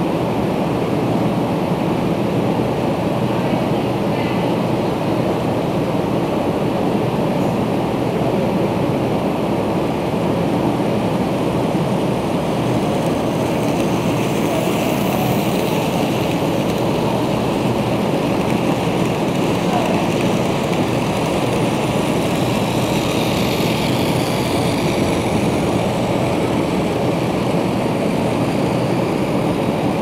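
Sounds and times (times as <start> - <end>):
rushing background noise: 0.0 - 30.0
model train whirring: 9.6 - 30.0.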